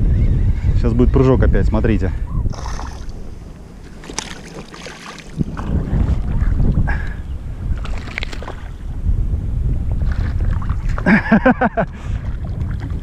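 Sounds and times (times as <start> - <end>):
wind rumble on microphone: 0.0 - 13.0
water sloshing around kayak: 2.3 - 9.0, 10.0 - 13.0.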